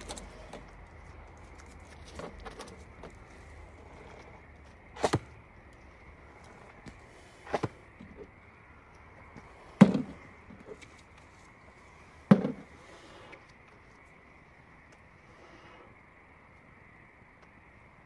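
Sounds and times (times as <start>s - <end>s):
sharp knocks: 9.8s - 10.2s, 12.3s - 12.7s.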